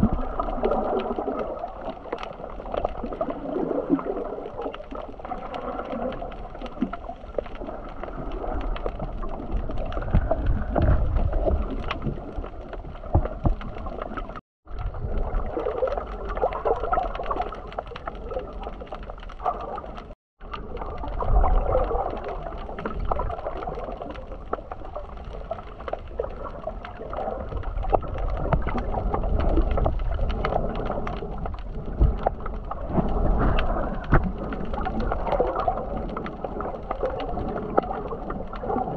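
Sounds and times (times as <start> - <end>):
muffled seawater gurgling: 0.0 - 38.9
small clicks and crackles: 0.0 - 38.9
low rumble: 27.4 - 35.3.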